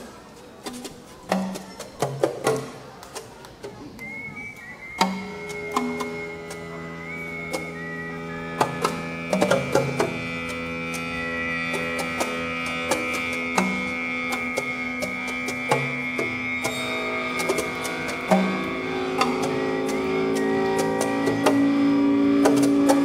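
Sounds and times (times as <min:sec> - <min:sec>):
short low notes: 0:03.8 - 0:23.0
held tones droning: 0:04.0 - 0:23.0
sharp percussive strikes: 0:08.4 - 0:23.0.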